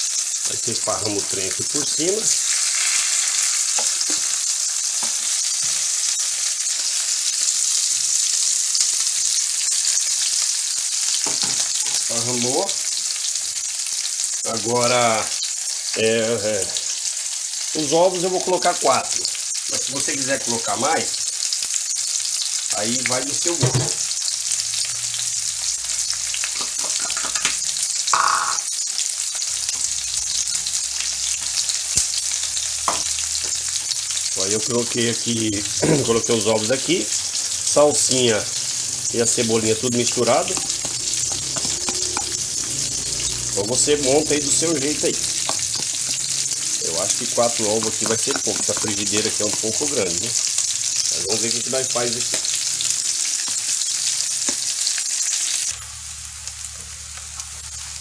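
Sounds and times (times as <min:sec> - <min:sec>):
food sizzling in a frying pan: 0:00.0 - 0:58.0
spatula scraping: 0:39.5 - 0:46.5.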